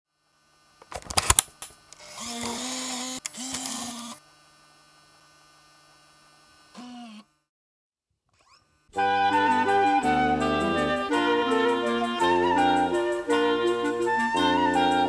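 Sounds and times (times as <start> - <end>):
camcorder tape transport whirring: 0.8 - 7.3.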